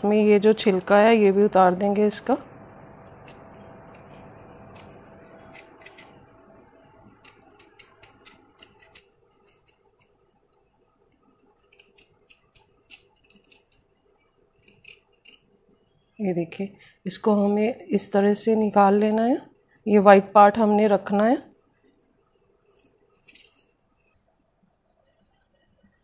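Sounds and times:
knife slicing watermelon rind: 3.1 - 6.2.

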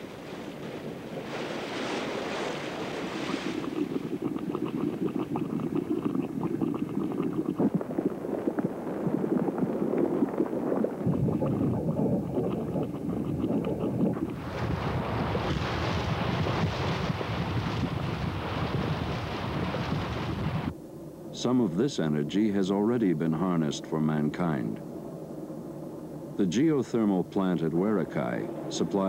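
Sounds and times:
hot spring bubbling: 0.0 - 20.7.

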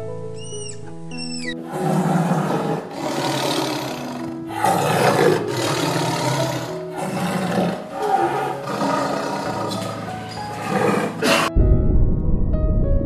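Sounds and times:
background music with held notes: 0.0 - 13.0
tiger roaring: 1.6 - 11.5.

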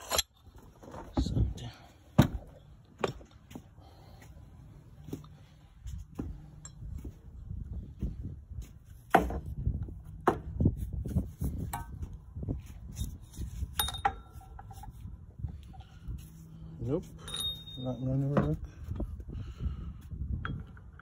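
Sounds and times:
ringing metallic clinks: 6.6 - 6.9, 13.7 - 14.7, 17.2 - 18.7.

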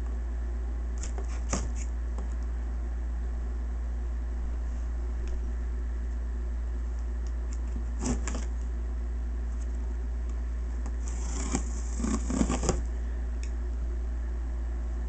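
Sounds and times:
steady low hum: 0.0 - 15.0
tool scraping tape on cardboard: 1.0 - 2.0, 7.5 - 8.5, 10.9 - 12.9.

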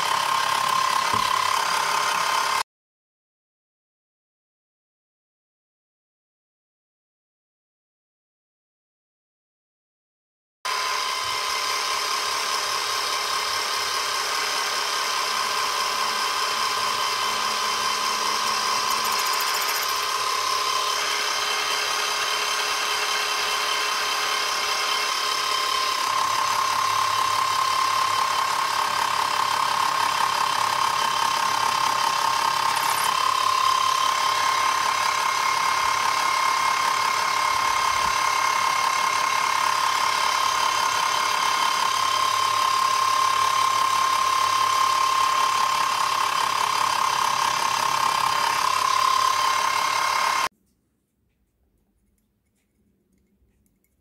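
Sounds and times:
bench drill whining: 0.0 - 2.6, 10.7 - 50.5.

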